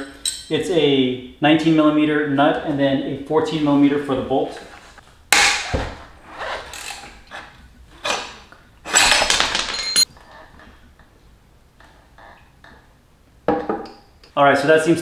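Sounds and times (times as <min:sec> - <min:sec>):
metal clanking and scraping: 0:05.5 - 0:10.1
metallic ring: 0:08.9 - 0:10.1.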